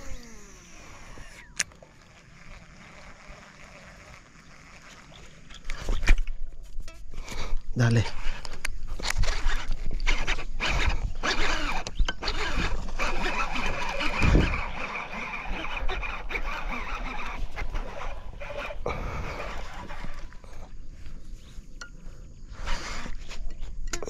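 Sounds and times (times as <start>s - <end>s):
fishing reel whirring: 0.0s - 6.1s, 8.2s - 21.2s.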